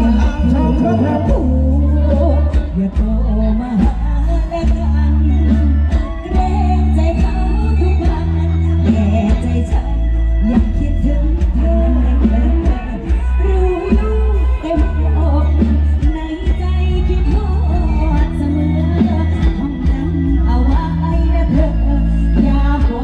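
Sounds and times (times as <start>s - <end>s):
heavy bass: 0.0s - 23.0s
live band over loudspeakers: 0.0s - 23.0s
person singing: 0.0s - 23.0s.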